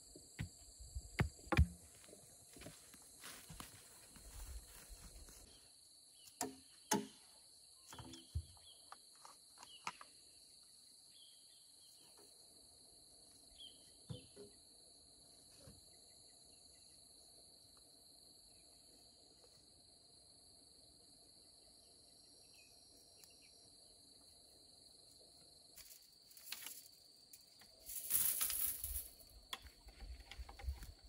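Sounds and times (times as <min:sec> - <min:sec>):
footsteps: 0:01.2 - 0:05.5, 0:27.9 - 0:30.9
handling knocks and rustles: 0:27.8 - 0:31.0.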